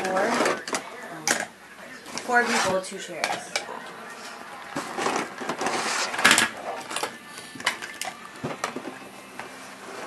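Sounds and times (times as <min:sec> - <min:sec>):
clatter of plastic toys: 0:04.8 - 0:08.9.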